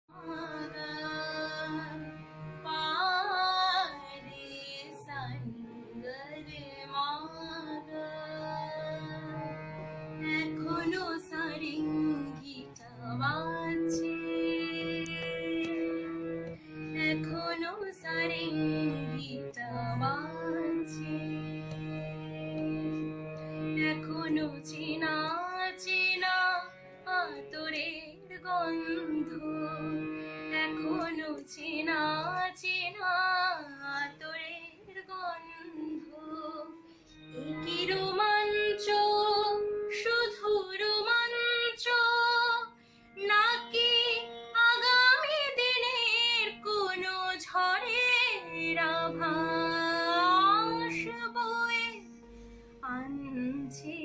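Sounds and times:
sustained instrumental accompaniment: 0:04.8 - 0:32.5, 0:35.8 - 0:40.6.

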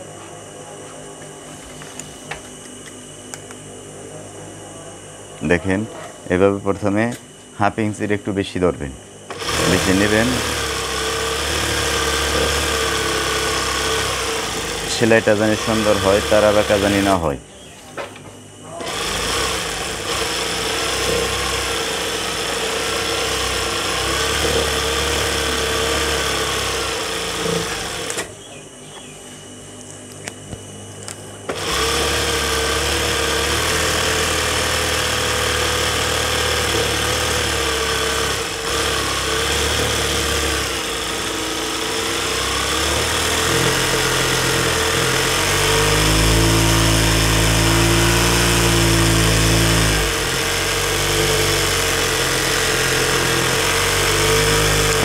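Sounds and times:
sewing machine running: 0:09.3 - 0:17.2, 0:18.8 - 0:28.3, 0:31.5 - 0:55.0.

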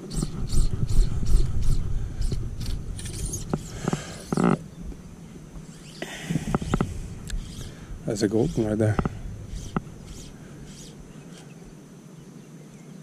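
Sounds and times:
wind buffeting microphone: 0:00.0 - 0:11.3
small clicks and knocks: 0:06.4 - 0:11.5.

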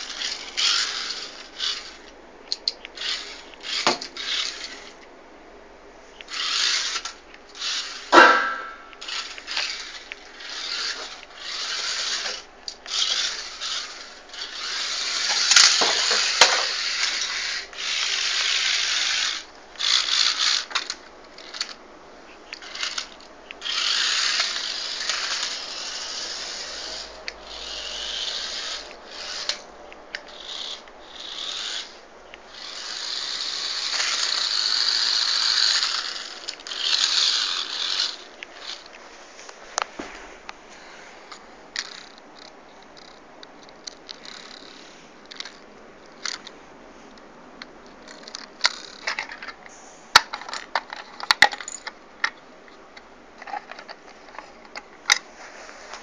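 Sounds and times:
rc car motor whirring: 0:00.0 - 0:05.0, 0:06.2 - 0:21.8, 0:22.4 - 0:39.0, 0:41.7 - 0:46.5, 0:47.9 - 0:49.6.

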